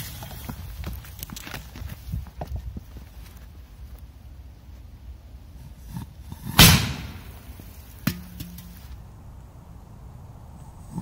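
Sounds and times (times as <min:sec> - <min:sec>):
firecracker bang under metal can: 0:06.4 - 0:07.4.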